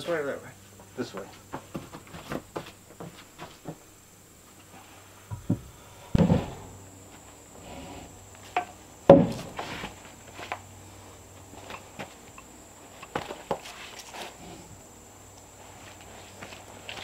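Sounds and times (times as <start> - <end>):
high insect buzz: 0.0 - 17.0
log knocking on wooden posts: 1.2 - 3.8, 5.3 - 6.6, 8.5 - 9.6.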